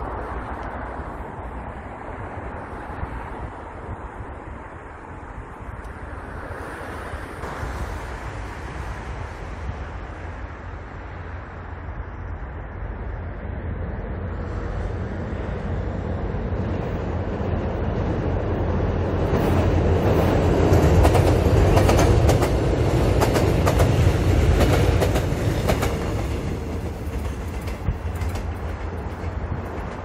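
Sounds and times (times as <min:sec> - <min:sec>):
train wheels clacking over rail joints: 0:19.4 - 0:30.0.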